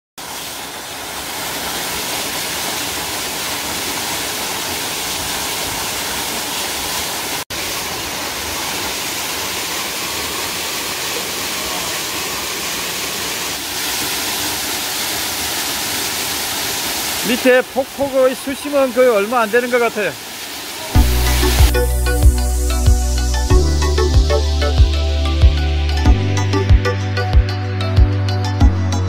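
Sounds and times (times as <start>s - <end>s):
waterfall splashing into pool: 0.2s - 21.9s.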